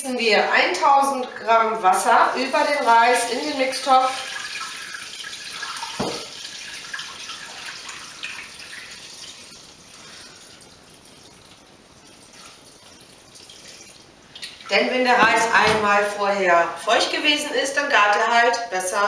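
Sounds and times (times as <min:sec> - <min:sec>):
water pouring from a kettle: 0:01.2 - 0:15.8.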